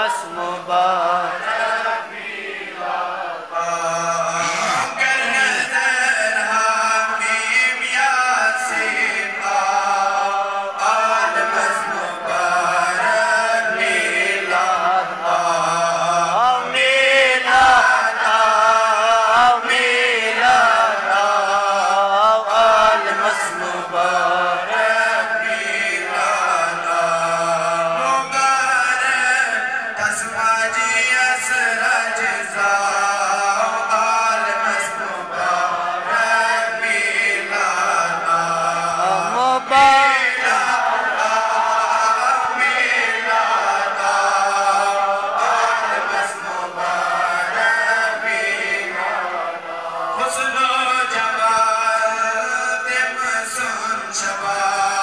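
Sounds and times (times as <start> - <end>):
man singing melismatic chant: 0.0 - 55.0.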